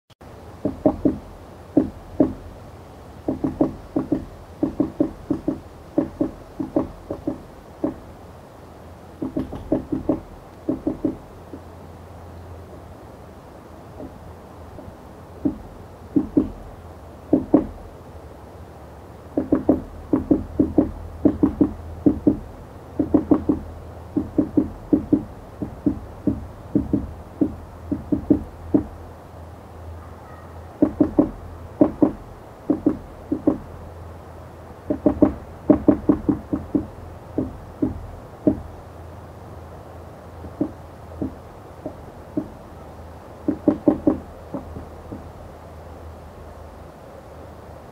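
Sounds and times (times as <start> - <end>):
woodpecker pecking at wood: 0.6 - 2.6, 3.2 - 8.1, 9.2 - 11.7, 14.8 - 16.7, 17.3 - 17.8, 19.3 - 29.0, 30.8 - 33.8, 34.8 - 38.7, 40.4 - 42.8, 43.4 - 45.3.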